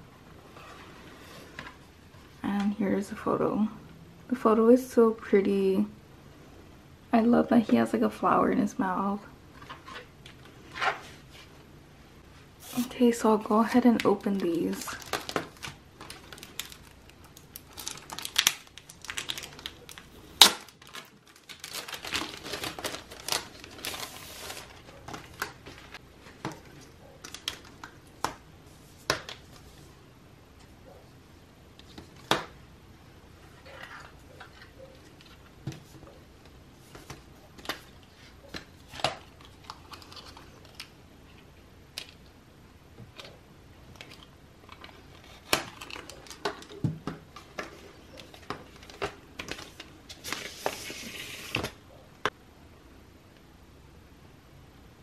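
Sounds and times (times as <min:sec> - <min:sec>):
cellophane crinkling and tearing: 0:13.6 - 0:26.0, 0:26.6 - 0:28.0, 0:37.6 - 0:41.0, 0:44.0 - 0:51.8.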